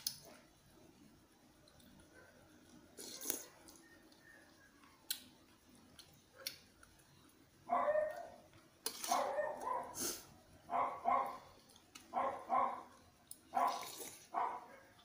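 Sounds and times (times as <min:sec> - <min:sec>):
dog barking: 0:07.7 - 0:08.4, 0:09.0 - 0:10.0, 0:10.7 - 0:11.5, 0:12.1 - 0:15.0.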